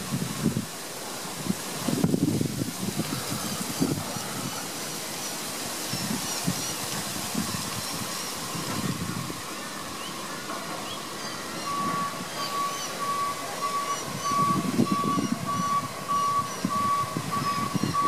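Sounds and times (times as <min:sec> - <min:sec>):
outdoor noise: 0:00.0 - 0:18.0
distant garbage truck idling: 0:08.2 - 0:18.0
reversing beeper: 0:11.6 - 0:18.0.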